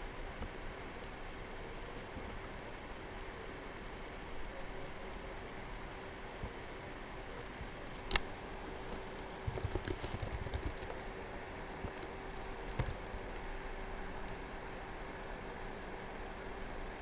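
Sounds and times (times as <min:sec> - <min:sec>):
faint hum and hiss: 0:00.0 - 0:17.0
sharp click: 0:07.8 - 0:08.3.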